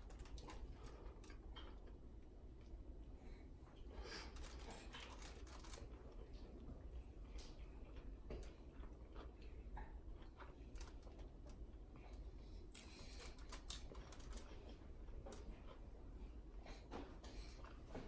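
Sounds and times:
person chewing food: 4.2s - 16.4s.

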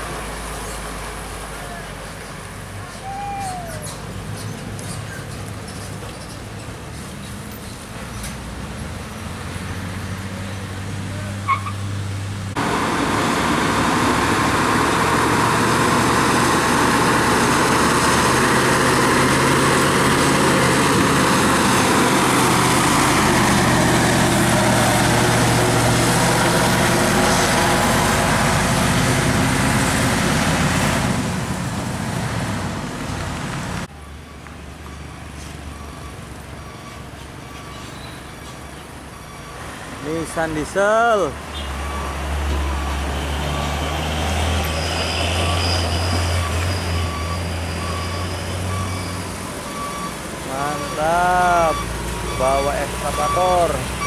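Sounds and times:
heavy diesel truck engines: 0.0s - 54.0s.

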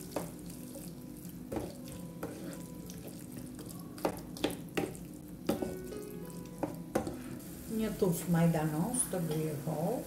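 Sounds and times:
wooden spoon stirring: 0.0s - 7.2s
vegetables sizzling in a pan: 0.0s - 10.0s.

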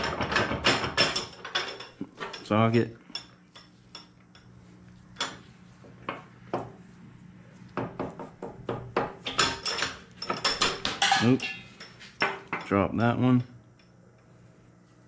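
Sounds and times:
metal tools clinking: 0.0s - 4.5s, 9.3s - 14.0s.

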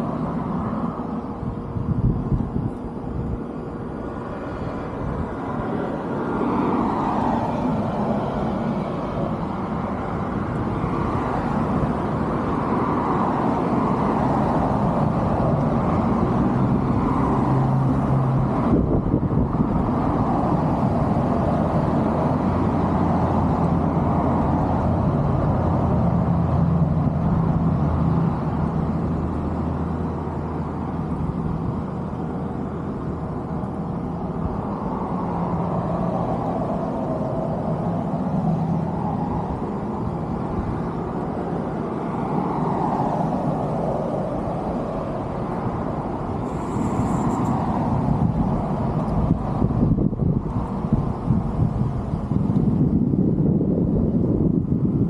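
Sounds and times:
low engine hum: 0.0s - 55.0s
road traffic rumble: 0.0s - 55.0s.

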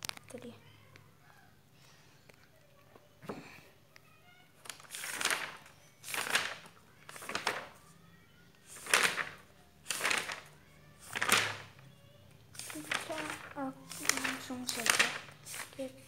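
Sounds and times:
paper pages rustling: 4.6s - 7.9s, 8.6s - 11.8s, 12.5s - 16.0s.

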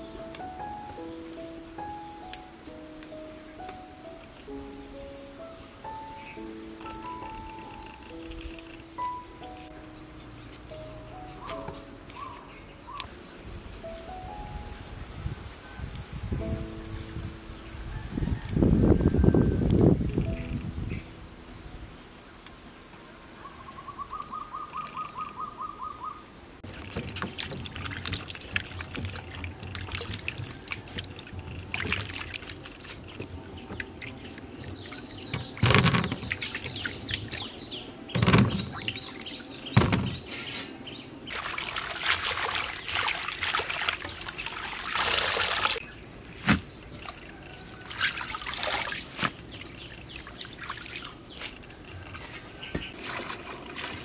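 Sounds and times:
bird trill: 5.5s - 13.1s, 23.4s - 26.3s, 33.1s - 41.4s
water splashing and trickling: 26.6s - 54.0s
dull knocks: 38.1s - 38.9s, 39.7s - 40.3s.

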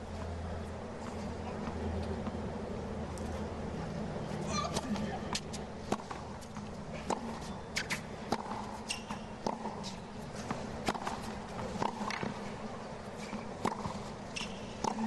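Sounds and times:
tennis ball bouncing: 4.7s - 15.0s
racket hitting ball: 7.0s - 12.4s, 13.3s - 15.0s.

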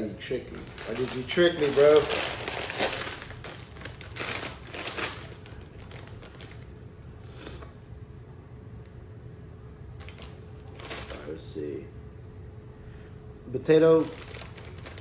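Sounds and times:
chip bag crinkling: 0.0s - 6.7s, 10.0s - 11.4s, 13.9s - 15.0s.

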